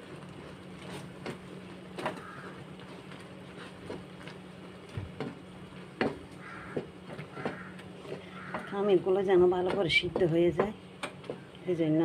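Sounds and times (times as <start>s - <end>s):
steady low hum: 0.0s - 12.0s
utensils knocking against a pot: 6.0s - 8.9s.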